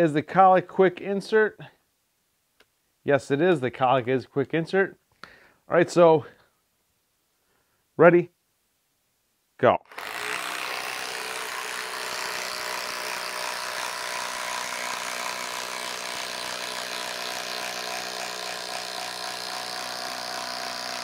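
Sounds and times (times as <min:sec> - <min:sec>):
impact driver hammering a screw: 0:09.9 - 0:21.0.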